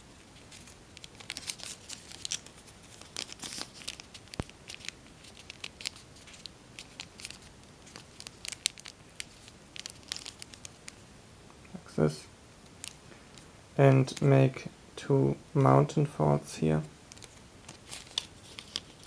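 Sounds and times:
paper rustling and crinkling: 0:00.4 - 0:11.0, 0:17.1 - 0:19.0.

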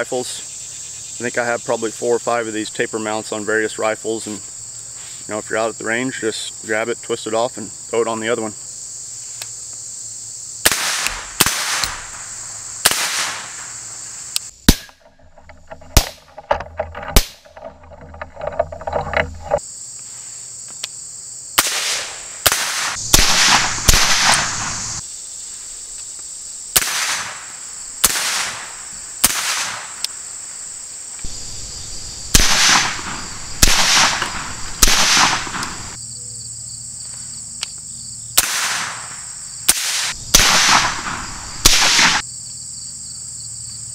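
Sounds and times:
suppressed rifle shots: 0:10.6 - 0:13.8, 0:14.6 - 0:17.4, 0:21.6 - 0:25.0, 0:26.8 - 0:30.0, 0:31.3 - 0:36.0, 0:38.4 - 0:42.2.

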